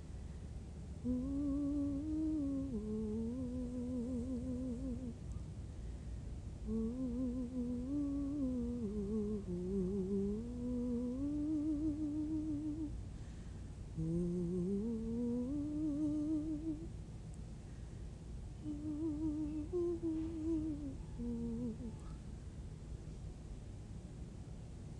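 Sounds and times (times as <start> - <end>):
woman humming: 1.0 - 5.2, 6.6 - 13.0, 14.0 - 16.9, 18.6 - 22.2.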